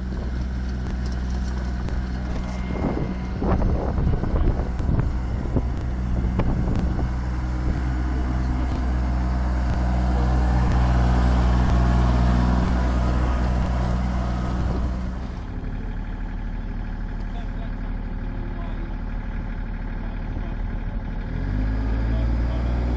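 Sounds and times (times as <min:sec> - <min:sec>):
tractor diesel engine running: 0:00.0 - 0:22.9
sharp clicks: 0:11.6 - 0:11.9.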